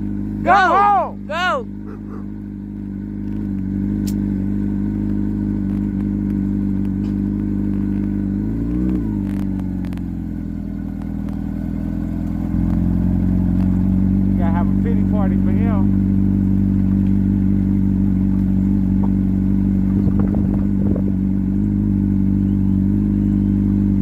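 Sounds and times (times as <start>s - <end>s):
vehicle motor humming: 0.0s - 24.0s.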